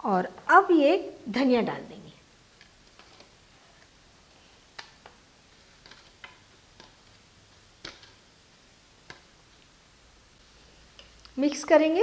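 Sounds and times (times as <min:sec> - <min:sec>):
utensils tapping on pan: 0:04.7 - 0:08.3, 0:09.0 - 0:09.4.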